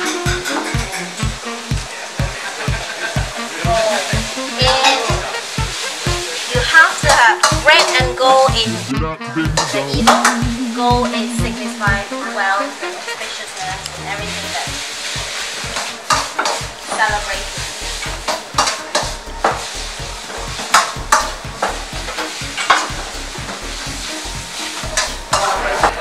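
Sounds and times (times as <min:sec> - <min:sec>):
steady hiss: 0:10.1 - 0:25.8.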